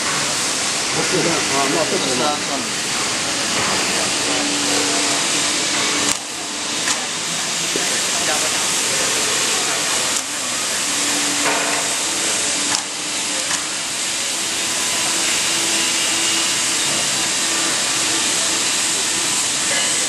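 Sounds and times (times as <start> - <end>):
riveting machine hissing: 0.0 - 20.0.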